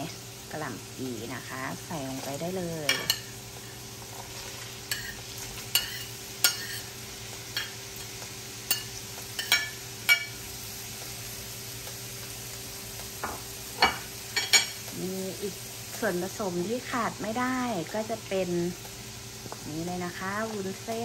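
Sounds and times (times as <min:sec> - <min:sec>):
food sizzling in a pan: 0:00.0 - 0:21.0
metal utensil scraping a pan: 0:04.8 - 0:06.9.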